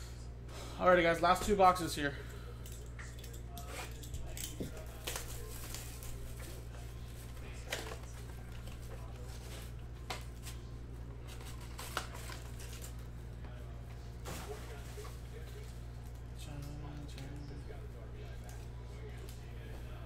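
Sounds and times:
steady low hum: 0:00.0 - 0:20.0
card packs rustling: 0:04.4 - 0:13.2.

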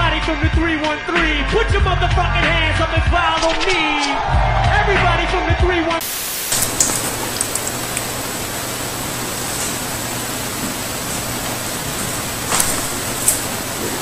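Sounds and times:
white noise static hiss: 0:06.0 - 0:14.0.

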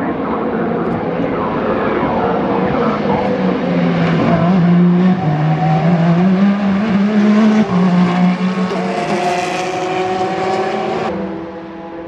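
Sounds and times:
race car engine accelerating: 0:02.4 - 0:12.0.

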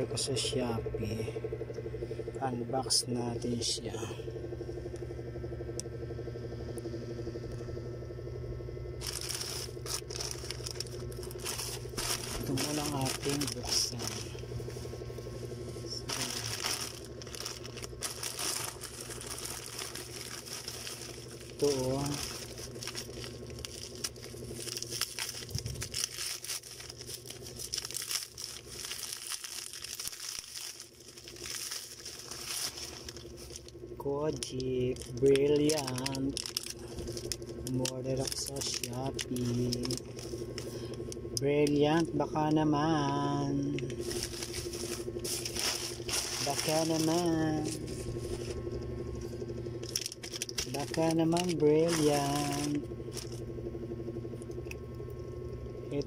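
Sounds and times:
steady low hum: 0:00.0 - 0:56.0
plastic mailer pouch crinkling: 0:09.0 - 0:42.1, 0:42.8 - 0:53.5.

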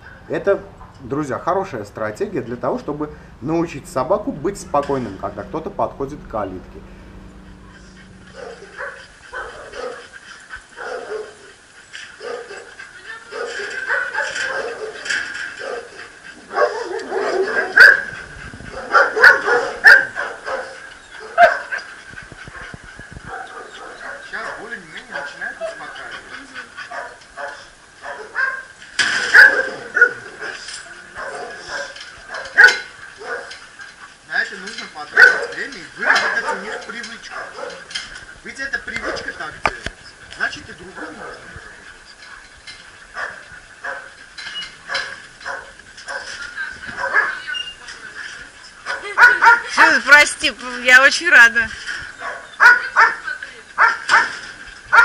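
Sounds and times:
dogs barking: 0:07.0 - 0:34.2, 0:35.0 - 0:39.5, 0:40.4 - 0:47.8, 0:48.7 - 0:50.5, 0:52.1 - 0:55.0
dogs yipping: 0:07.3 - 0:50.3, 0:51.0 - 0:55.0.

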